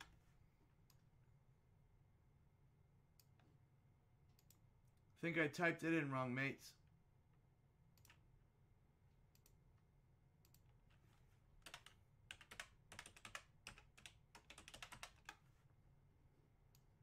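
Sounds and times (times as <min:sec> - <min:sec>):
typing on a keyboard: 0:11.6 - 0:15.4.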